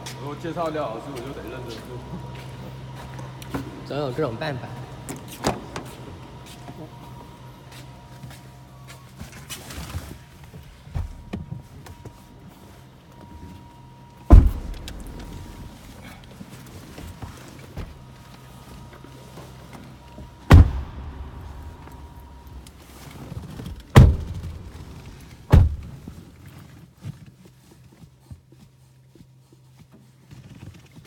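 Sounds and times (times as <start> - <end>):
car doors thudding shut: 11.0 - 11.5, 14.3 - 16.3, 20.5 - 26.1.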